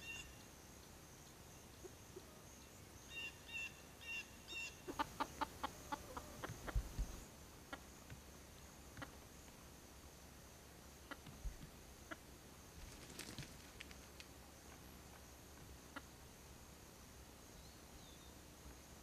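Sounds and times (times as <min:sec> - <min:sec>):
steady high hiss: 0:00.0 - 0:19.0
hens pecking in grass: 0:04.8 - 0:09.3, 0:11.0 - 0:16.2.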